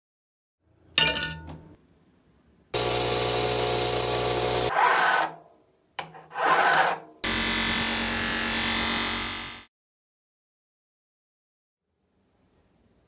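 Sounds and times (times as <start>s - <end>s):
pliers clinking in glass: 1.0s - 1.7s
file rasping on metal: 3.6s - 5.4s, 6.0s - 7.3s.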